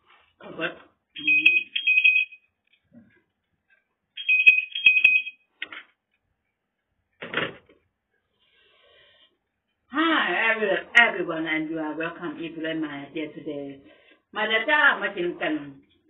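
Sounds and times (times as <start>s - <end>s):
telephone ringing: 1.2s - 2.6s, 4.2s - 5.5s.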